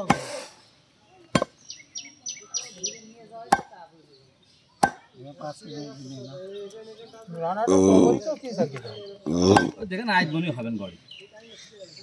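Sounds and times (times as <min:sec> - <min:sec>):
bird chirping: 0:00.3 - 0:12.0
cleaver chopping on wooden block: 0:01.3 - 0:01.6, 0:03.5 - 0:03.7, 0:04.8 - 0:05.0.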